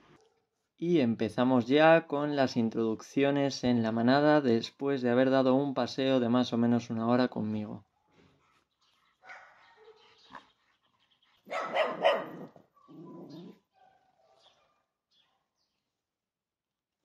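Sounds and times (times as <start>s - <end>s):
dog barking: 9.2s - 10.4s, 11.5s - 14.8s.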